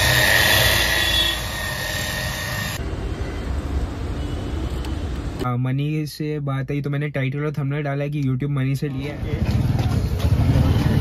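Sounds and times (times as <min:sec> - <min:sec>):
rotary polisher whining: 0:00.0 - 0:02.8.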